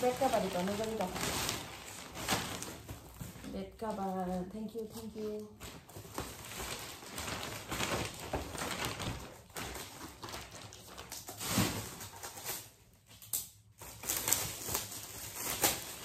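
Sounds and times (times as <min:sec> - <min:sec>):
gift wrap rustling and crinkling: 0:00.0 - 0:16.0.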